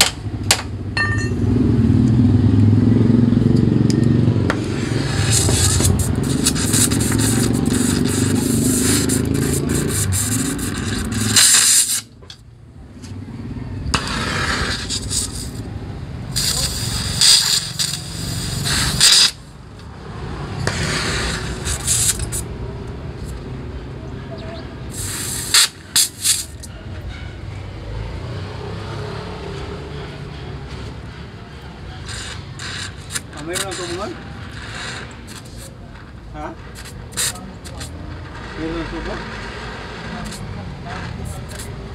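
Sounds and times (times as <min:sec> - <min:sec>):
welding torch hissing: 0:04.5 - 0:12.1, 0:14.0 - 0:23.4, 0:24.8 - 0:26.7, 0:31.7 - 0:41.9.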